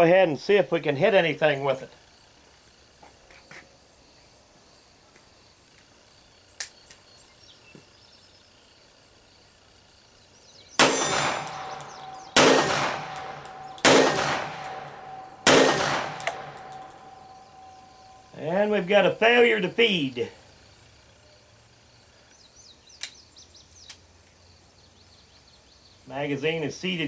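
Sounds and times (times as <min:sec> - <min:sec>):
sharp click: 0:10.8 - 0:17.4, 0:23.0 - 0:23.2
pistol shots with ringing tail: 0:10.8 - 0:18.3.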